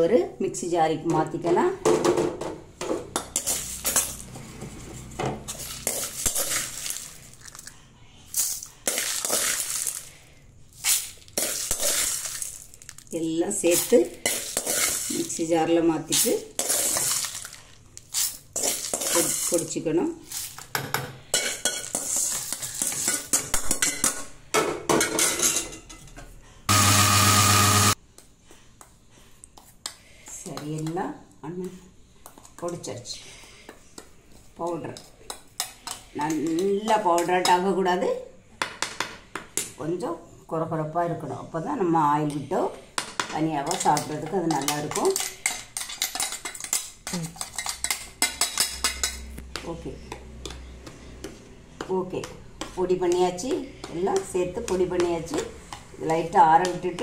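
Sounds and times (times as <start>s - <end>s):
spoon scraping dry chillies in bowl: 3.2s - 4.3s, 5.5s - 10.1s, 10.7s - 20.7s, 21.3s - 24.2s, 43.6s - 49.3s
mixer grinder whir: 26.7s - 28.0s.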